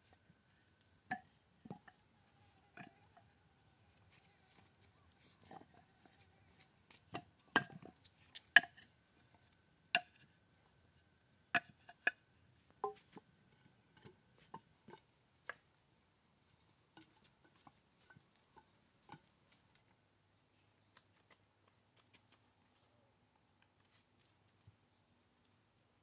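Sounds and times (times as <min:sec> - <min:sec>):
sharp knocks and taps: 0:12.8 - 0:13.3.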